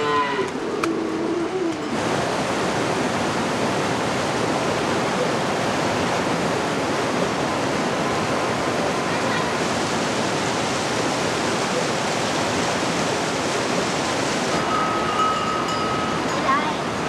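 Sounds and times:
cow lowing: 0.0s - 2.0s
mountain stream rushing: 0.0s - 17.0s.

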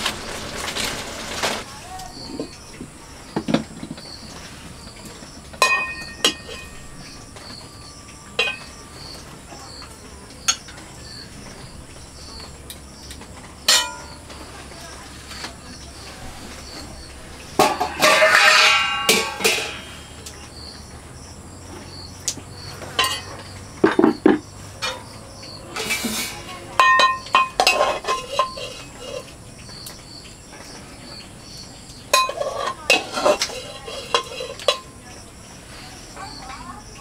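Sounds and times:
faint crickets chirping: 0.0s - 37.0s
metal plates clattering: 5.5s - 7.7s, 8.3s - 9.1s, 13.6s - 14.5s, 16.4s - 20.3s, 22.8s - 25.1s, 25.7s - 29.3s, 32.1s - 35.0s
ladle scraping a metal pot: 5.6s - 7.6s, 13.6s - 14.3s, 15.1s - 20.2s, 22.8s - 25.1s, 25.7s - 29.4s, 32.1s - 34.9s.

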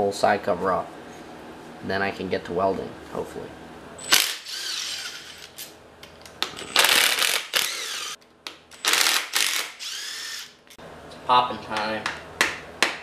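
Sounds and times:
cordless drill running: 4.0s - 5.6s, 6.7s - 8.2s, 8.8s - 10.6s.

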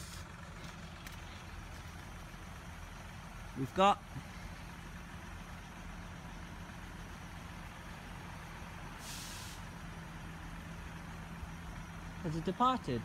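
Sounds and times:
engine idling hum: 0.0s - 13.0s
air hissing: 9.0s - 9.8s.

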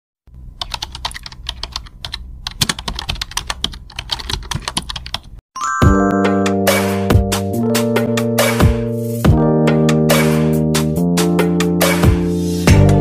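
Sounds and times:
rapid keystroke clicks: 0.6s - 5.4s.

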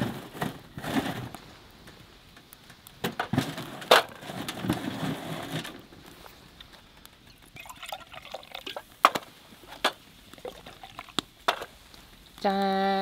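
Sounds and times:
logs scraping into stove: 0.0s - 7.6s.

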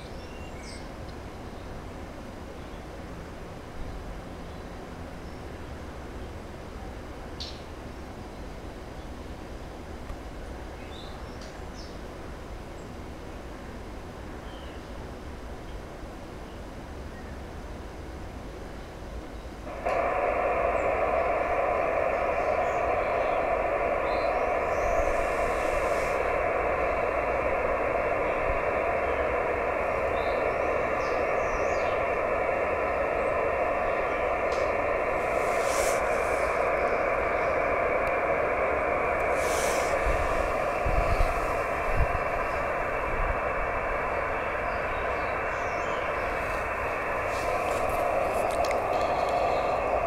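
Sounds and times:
radio receiver hiss: 19.6s - 50.0s.

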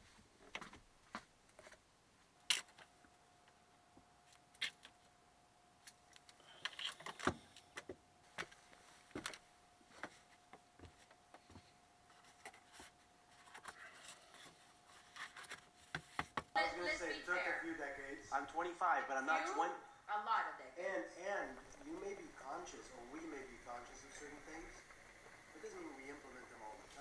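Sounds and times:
faint high hum: 16.6s - 27.0s.

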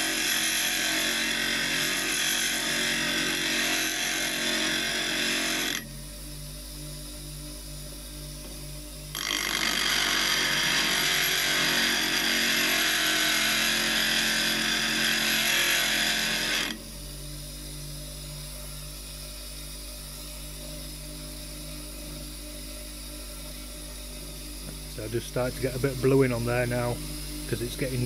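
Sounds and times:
chisel grinding on grinder wheel: 0.0s - 5.9s, 9.1s - 16.8s
grinder motor humming: 0.0s - 6.0s, 8.4s - 28.0s.

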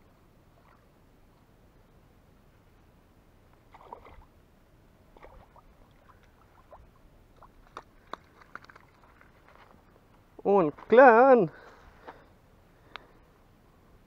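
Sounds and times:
fish splashing at water surface: 5.1s - 9.7s.

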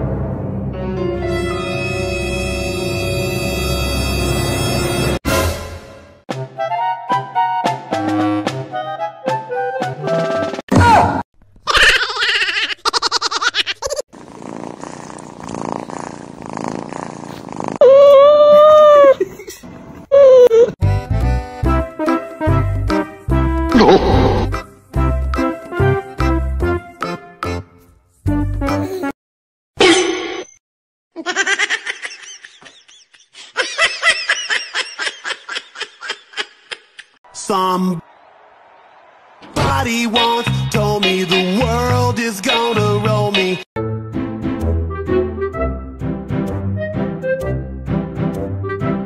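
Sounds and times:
person laughing: 11.7s - 14.0s, 18.5s - 20.8s, 31.2s - 37.2s
cat purring: 14.1s - 17.8s.

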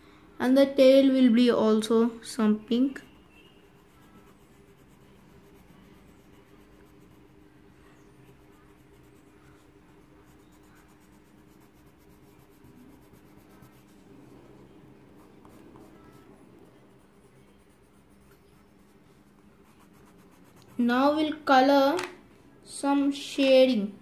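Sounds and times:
low steady hum: 0.0s - 24.0s
pencil scratching on paper: 3.2s - 21.1s.

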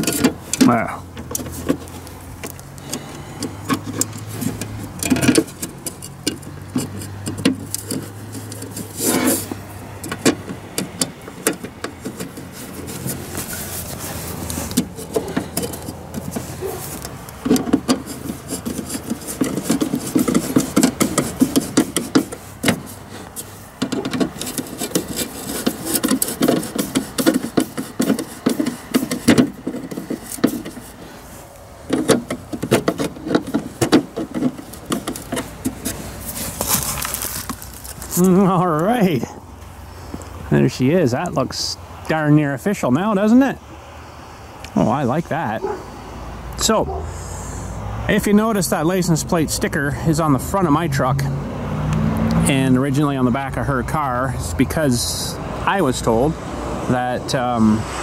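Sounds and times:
screwdriver clicking and scraping: 0.0s - 38.3s.

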